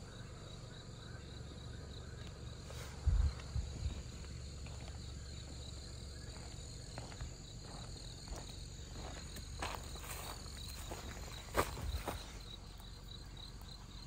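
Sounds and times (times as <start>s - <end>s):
crickets chirping: 0.0s - 14.0s
soft footsteps: 2.7s - 13.0s.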